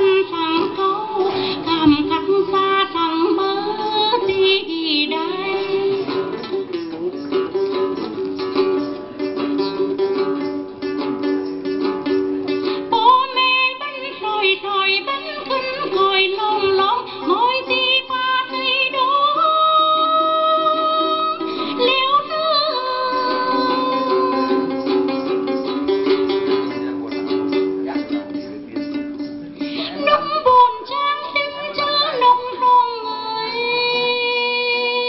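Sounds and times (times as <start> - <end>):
woman singing: 0.0 - 6.6, 12.9 - 25.1, 29.6 - 35.0
plucked lute: 0.0 - 35.0.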